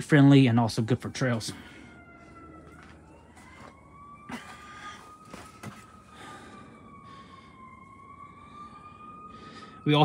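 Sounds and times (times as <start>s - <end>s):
distant siren wailing: 0.0s - 10.0s.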